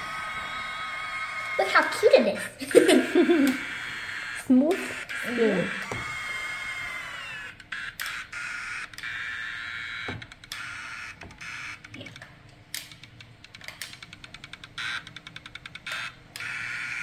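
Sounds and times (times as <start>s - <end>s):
small electric motor whining: 0.0s - 12.1s, 15.8s - 17.0s
sharp clicks: 6.0s - 16.9s.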